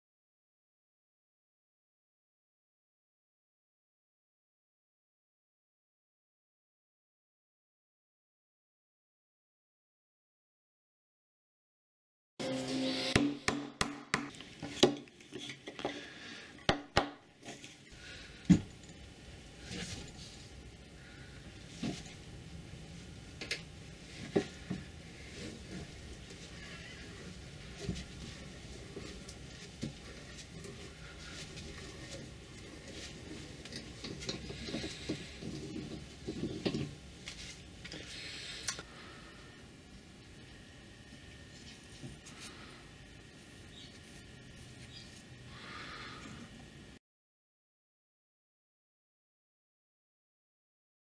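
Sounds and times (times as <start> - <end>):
hammer knocking on wooden block: 13.2 - 14.3.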